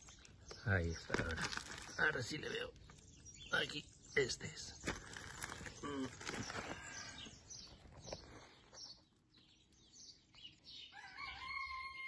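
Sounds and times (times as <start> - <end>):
small birds chirping: 0.0 - 12.0
rooster crowing: 10.9 - 12.0.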